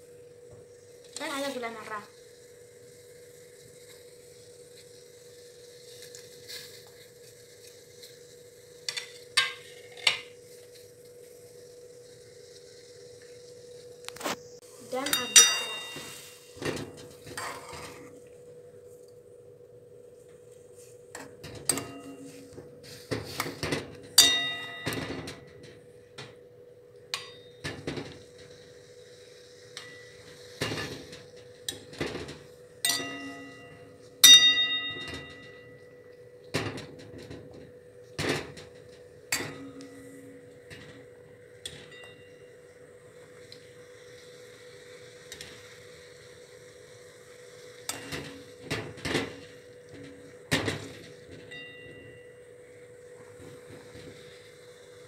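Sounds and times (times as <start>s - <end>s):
steady hum: 0.0s - 55.0s
spoon clinking in metal pan: 15.1s - 16.2s, 24.2s - 25.3s, 32.8s - 35.7s.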